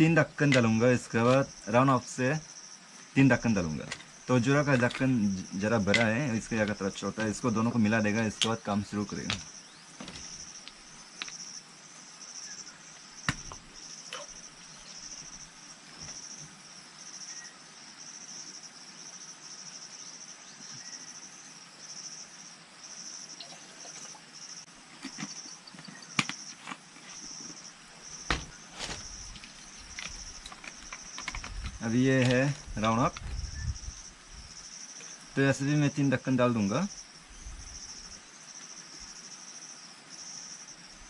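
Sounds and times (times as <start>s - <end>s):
insects chirping: 0.0s - 41.0s
handling knocks and clicks: 3.8s - 7.5s, 8.3s - 11.4s, 28.2s - 33.5s.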